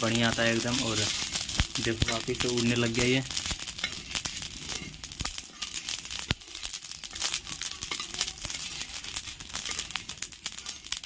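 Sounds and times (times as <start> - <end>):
seeds crackling and popping: 0.0 - 11.0
metal spatula scraping griddle: 3.7 - 11.0.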